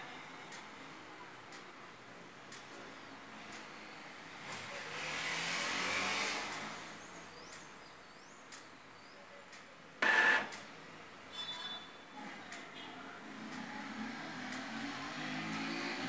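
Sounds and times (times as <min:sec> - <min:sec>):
printer mechanism noise: 0:10.0 - 0:10.6.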